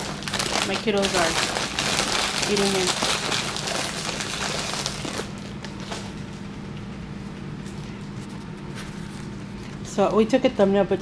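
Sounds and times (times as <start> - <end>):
plastic packaging crinkling: 0.0 - 6.2
low steady hum: 0.0 - 11.0.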